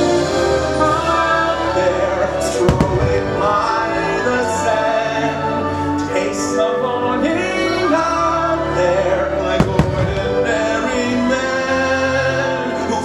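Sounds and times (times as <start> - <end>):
music with singing: 0.0 - 13.0
firework bang: 9.6 - 10.4.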